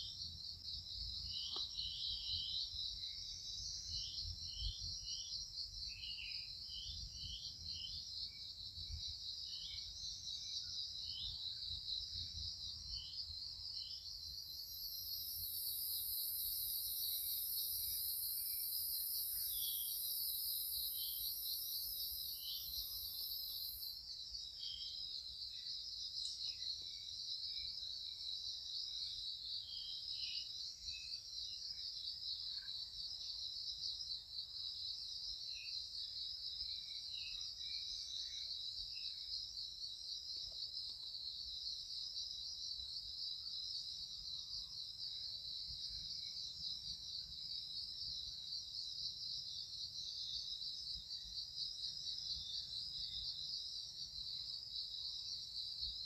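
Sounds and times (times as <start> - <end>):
insect chorus pulsing trill: 0.0 - 56.0.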